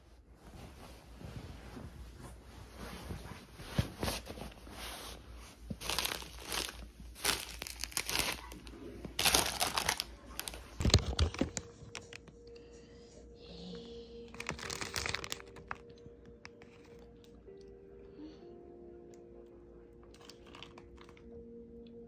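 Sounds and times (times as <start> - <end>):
plastic bags crinkling: 5.7 - 12.3, 14.3 - 17.1.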